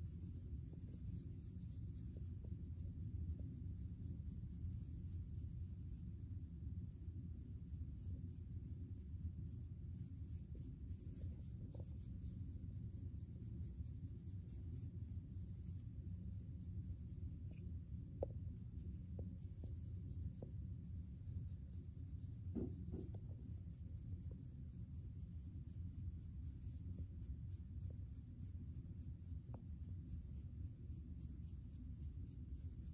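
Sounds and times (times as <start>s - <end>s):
comb scratching through hair: 0.0s - 17.8s.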